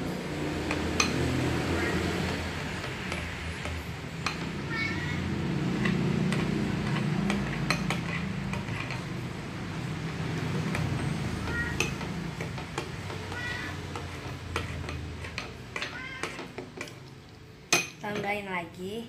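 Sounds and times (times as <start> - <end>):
metal spoon scraping ceramic bowl: 5.8 - 9.2, 11.7 - 17.0.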